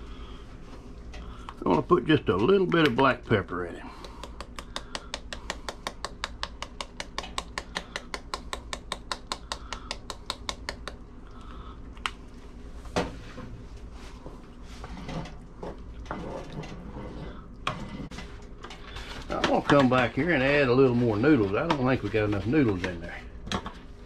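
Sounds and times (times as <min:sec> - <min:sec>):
wooden spoon stirring thick chili: 0:13.6 - 0:24.0.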